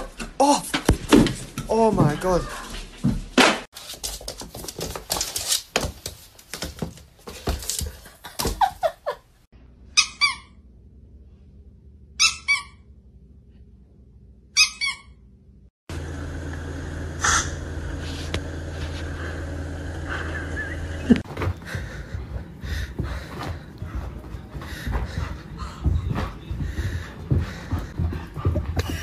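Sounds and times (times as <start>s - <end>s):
small dog yipping: 9.9s - 10.6s, 12.2s - 12.8s, 14.6s - 15.2s
steady low hum: 15.5s - 29.0s.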